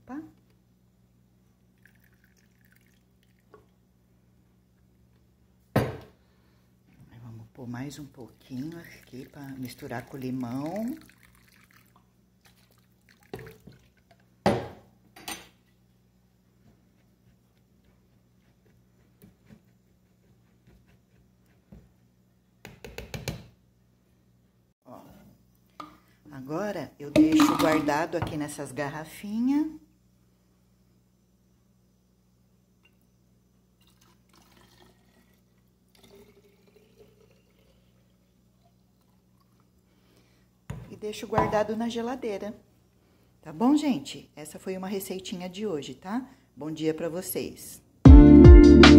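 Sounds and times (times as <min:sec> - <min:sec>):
liquid trickling through strainer: 0:01.8 - 0:03.6, 0:08.2 - 0:14.2, 0:33.8 - 0:39.7
bottle knocking on counter: 0:05.8 - 0:06.1, 0:14.4 - 0:14.8, 0:40.7 - 0:41.6.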